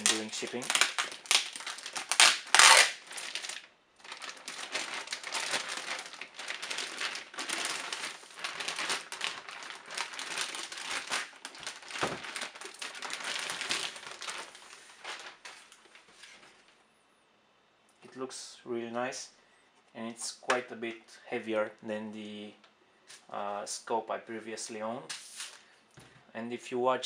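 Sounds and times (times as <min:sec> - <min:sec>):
plastic bag crinkling: 0:00.0 - 0:16.8.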